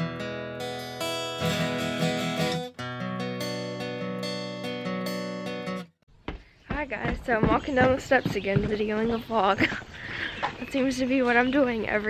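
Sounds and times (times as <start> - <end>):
strummed acoustic guitar chords: 0.0 - 5.9.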